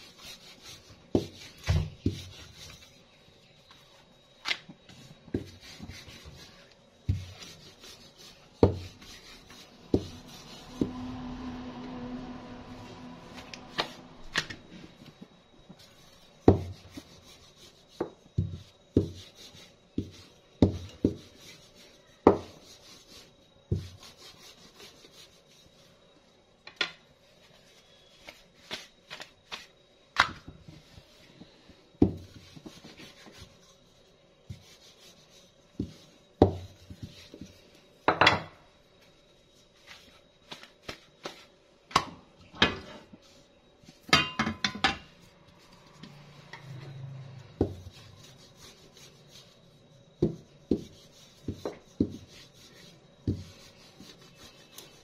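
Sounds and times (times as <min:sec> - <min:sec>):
rolling pin rubbing dough: 0:00.0 - 0:26.1, 0:27.1 - 0:41.6, 0:45.2 - 0:55.0
rolling pin knocking on countertop: 0:08.6 - 0:09.0, 0:22.2 - 0:22.6, 0:47.6 - 0:47.8, 0:50.2 - 0:52.2.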